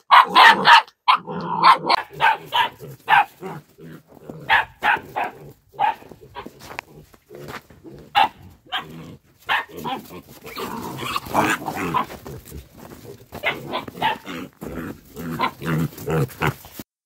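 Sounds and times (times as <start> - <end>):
puppies barking: 0.0 - 6.8, 8.0 - 16.8.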